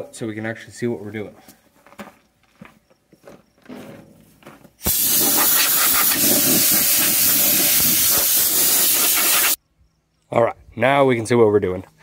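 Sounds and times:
compressed air blow gun hissing: 4.8 - 9.6.

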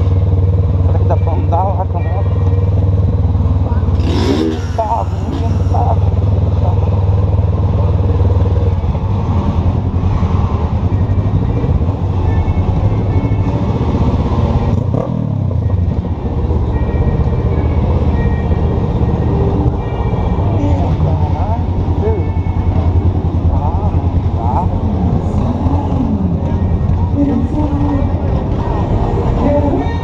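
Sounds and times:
motorcycle engine at low revs: 2.0 - 8.9.

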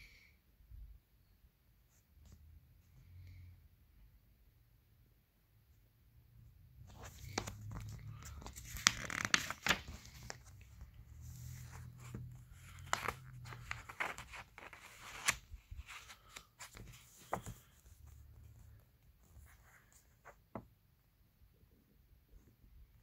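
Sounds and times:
paper pages rustling and snapping: 6.9 - 17.7.

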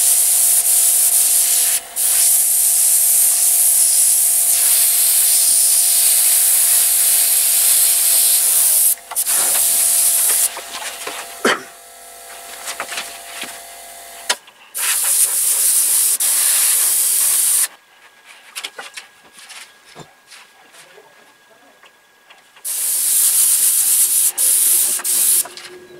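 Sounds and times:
airbrush hissing: 0.0 - 17.7, 22.7 - 25.5.

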